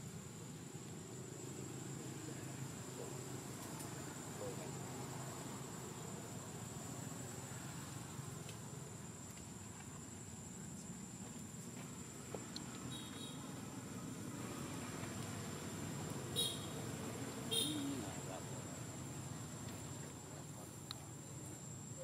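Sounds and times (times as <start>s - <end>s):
high-pitched insect drone: 15.4s - 22.0s
faint chirp: 17.6s - 18.3s.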